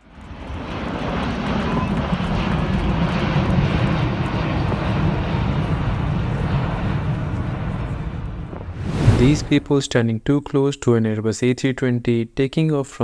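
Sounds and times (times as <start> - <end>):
jet engines roaring overhead: 0.0 - 9.7.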